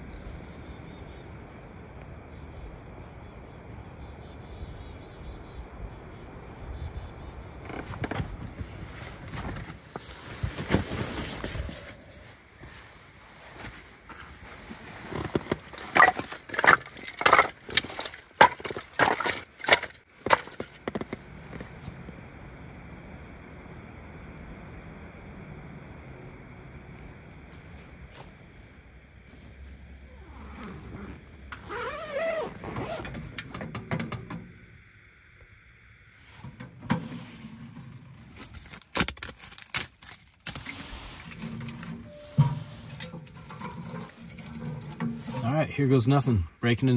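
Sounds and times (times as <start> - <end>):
gear scraping rustling and knocking: 7.6 - 21.9, 30.5 - 34.4, 36.3 - 46.1
metal stove clanks: 41.3 - 45.4.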